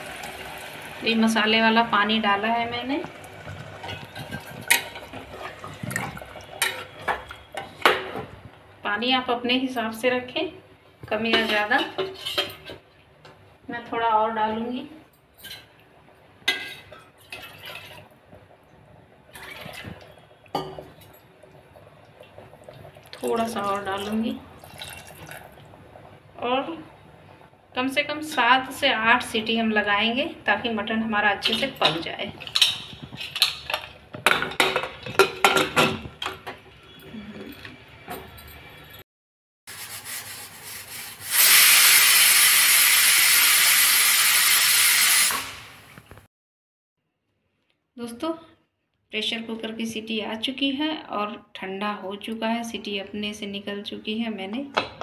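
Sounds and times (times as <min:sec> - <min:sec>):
water splashing into a pot: 0:02.8 - 0:08.3, 0:16.4 - 0:18.5, 0:19.2 - 0:26.0
pressure cooker whistle hissing: 0:40.6 - 0:45.8.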